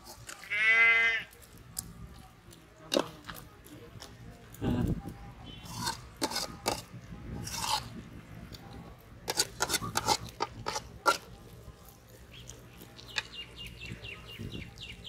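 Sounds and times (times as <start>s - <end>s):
ladle scraping and knocking pot: 5.6s - 8.0s, 9.2s - 11.4s.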